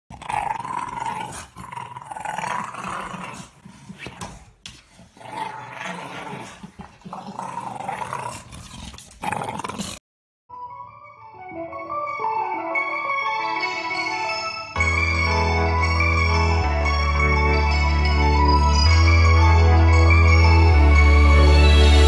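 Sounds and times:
dog growling: 0.1 - 10.0.

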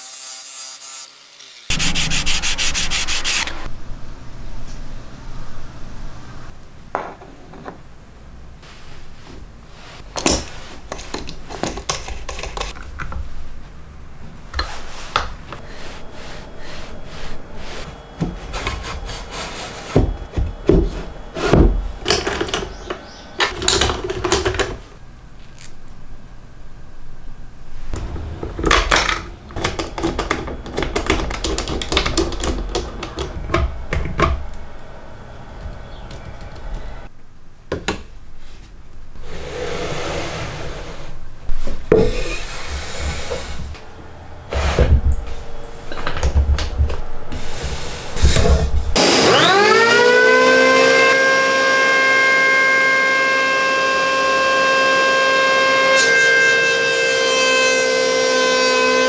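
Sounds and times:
wooden blocks tapping and scraping: 10.1 - 13.2, 18.2 - 24.9, 28.4 - 34.4.

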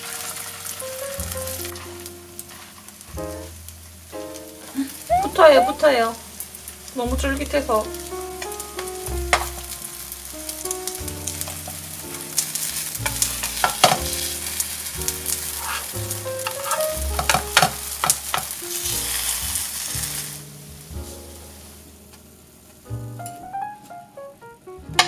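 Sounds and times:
rice cakes sizzling in oil: 0.0 - 5.2, 5.8 - 22.1.

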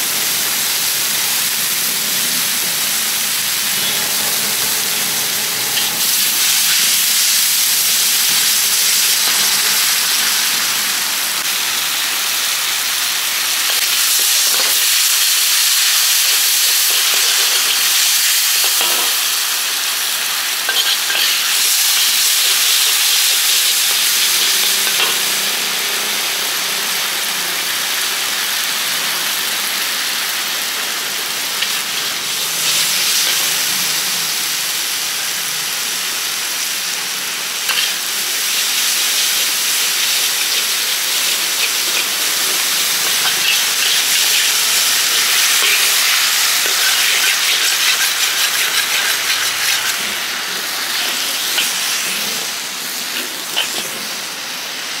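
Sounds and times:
food sizzling in a pan: 0.0 - 55.0.

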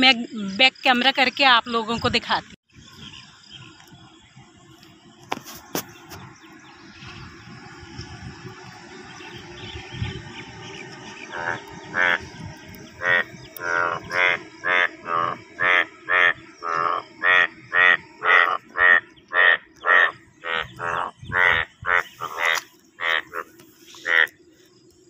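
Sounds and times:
bullfrogs croaking chorus: 9.0 - 24.4
loud short frog croaks: 11.3 - 24.4.

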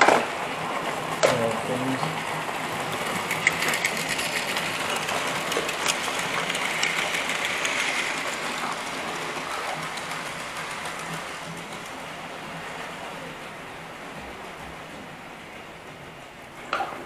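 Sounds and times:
wheels clicking on rails: 0.0 - 17.0
model train motor whirring: 0.5 - 12.7.

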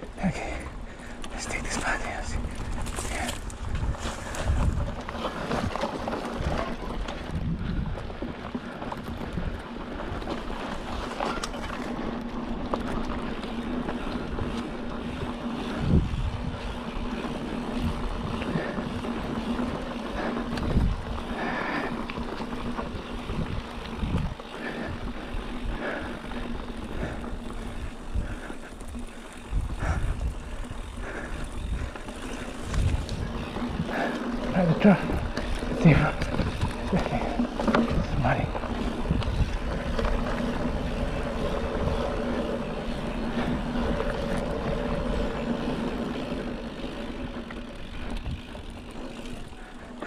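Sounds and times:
bike tyres rolling on dirt: 0.0 - 50.0
wind on microphone: 1.5 - 5.8, 6.4 - 8.2, 15.6 - 16.7, 20.5 - 21.3, 29.0 - 34.0, 35.1 - 42.3.

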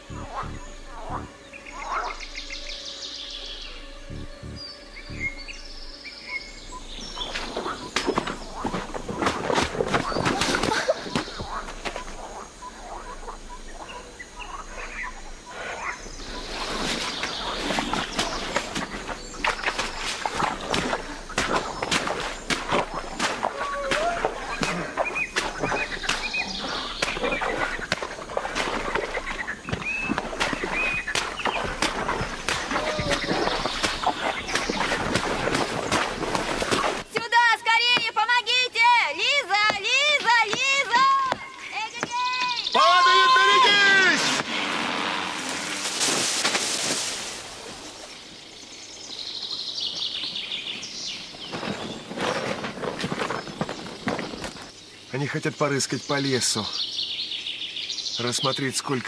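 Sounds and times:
high bird chirps: 0.0 - 8.8, 11.0 - 35.6
rustling: 51.3 - 54.7.

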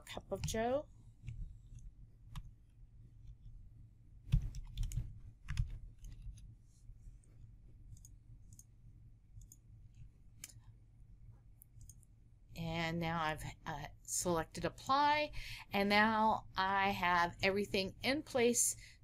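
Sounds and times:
keyboard keystrokes: 4.3 - 6.4
mouse clicks: 7.9 - 8.7.

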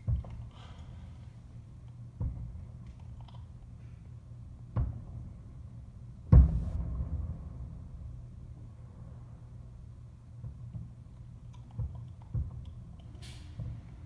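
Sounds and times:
distant fireworks booming: 6.4 - 9.3.

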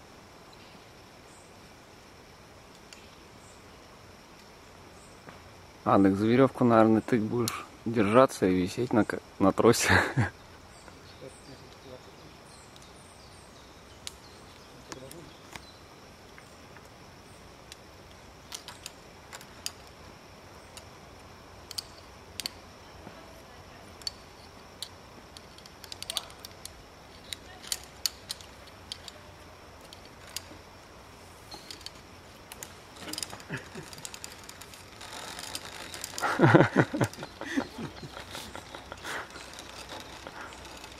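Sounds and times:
carabiners clicking on cable: 17.6 - 20.0, 20.6 - 22.6, 23.9 - 30.9, 31.5 - 40.9
trolley whirring along cable: 25.2 - 40.9.

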